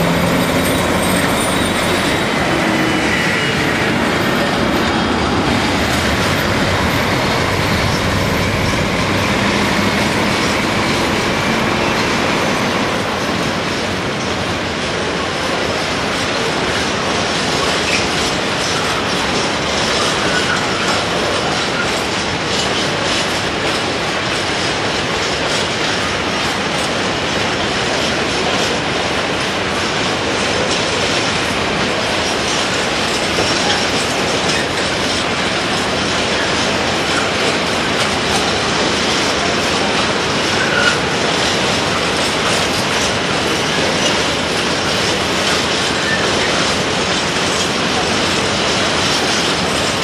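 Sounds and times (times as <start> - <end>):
clacking over rail joints: 0.0 - 50.0
train wheels on rails: 0.0 - 50.0.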